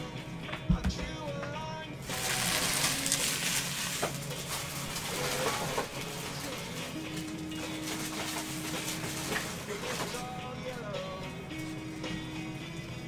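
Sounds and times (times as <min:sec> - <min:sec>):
foil wrapper crinkling: 0:02.0 - 0:11.0.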